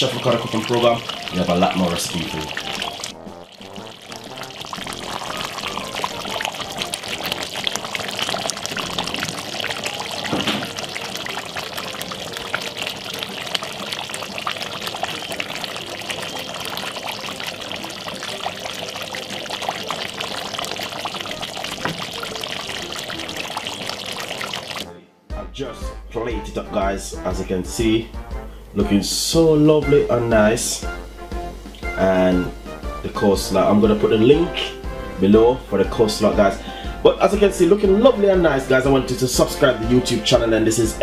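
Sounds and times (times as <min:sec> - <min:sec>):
thick sauce bubbling: 0:00.0 - 0:24.9, 0:30.9 - 0:33.0.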